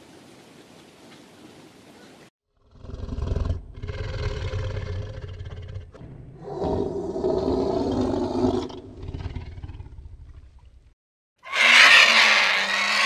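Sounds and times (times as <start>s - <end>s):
tiger roaring: 2.6s - 10.6s, 11.5s - 13.0s.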